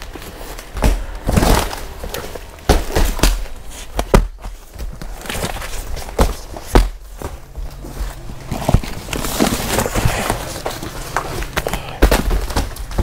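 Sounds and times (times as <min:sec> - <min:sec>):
packs thumping and knocking: 0:00.0 - 0:13.0
rustling plastic wrap and cardboard: 0:00.0 - 0:13.0.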